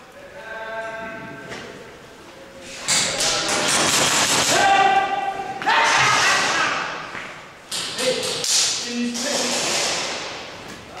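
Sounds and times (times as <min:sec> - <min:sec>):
airsoft guns firing in bursts: 0:03.2 - 0:04.6, 0:08.5 - 0:10.5
players shouting: 0:04.3 - 0:07.1.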